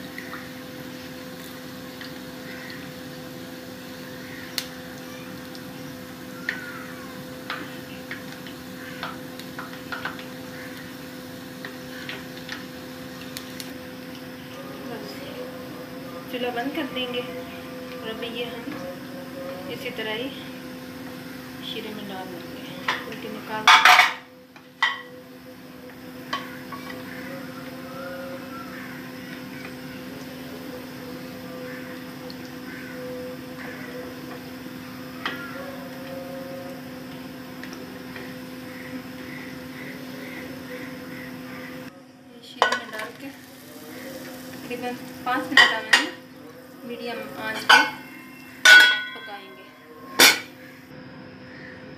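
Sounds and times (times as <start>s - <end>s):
oil popping while deep-frying: 0.0s - 14.6s, 25.8s - 36.1s, 36.7s - 41.9s, 42.6s - 49.4s
steady low hum: 0.0s - 51.9s.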